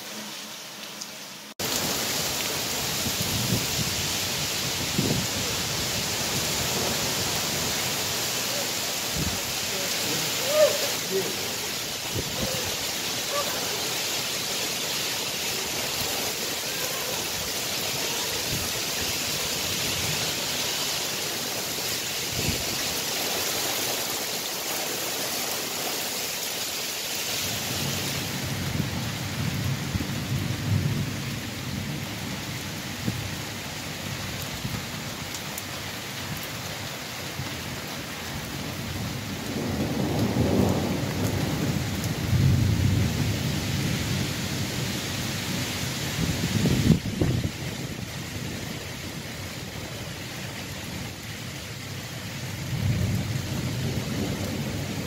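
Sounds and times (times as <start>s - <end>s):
heavy rain on street: 0.0s - 55.0s
thunder rumbling: 39.4s - 44.9s.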